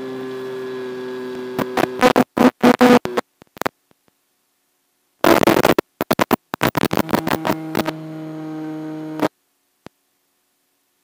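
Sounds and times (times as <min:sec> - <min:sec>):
steady buzzing hum: 0:00.0 - 0:10.5
static bursts: 0:01.6 - 0:03.9, 0:05.2 - 0:08.2, 0:09.0 - 0:09.4.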